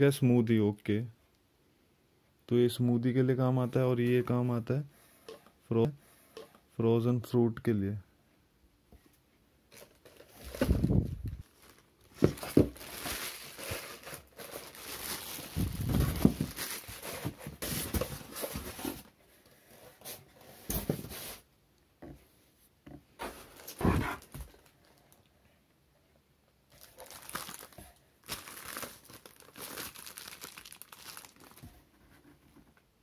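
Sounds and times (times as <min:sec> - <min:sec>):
plastic wrapping crinkling: 0:09.7 - 0:19.1, 0:23.4 - 0:25.2, 0:26.7 - 0:31.8.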